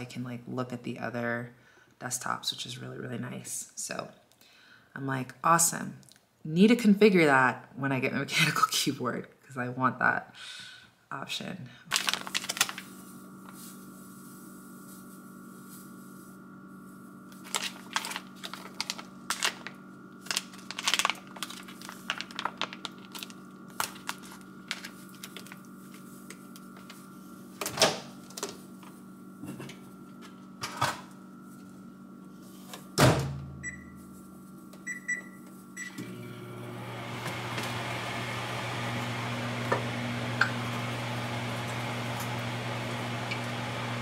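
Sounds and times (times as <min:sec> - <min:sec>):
plastic bag handled: 0:11.9 - 0:27.6
steady hum: 0:11.9 - 0:35.9
microwave button beeps: 0:33.6 - 0:34.0, 0:34.8 - 0:36.1.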